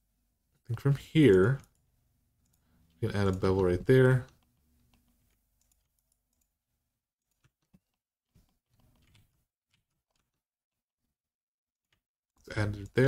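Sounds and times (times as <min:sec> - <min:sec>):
faint keyboard clicks: 0:01.2 - 0:06.5, 0:07.2 - 0:10.4, 0:11.9 - 0:13.0.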